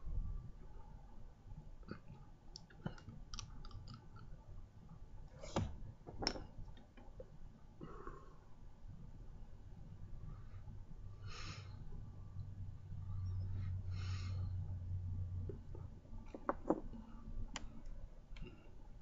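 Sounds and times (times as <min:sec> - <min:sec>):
mouth clicks and lip smacks: 0:02.5 - 0:04.2.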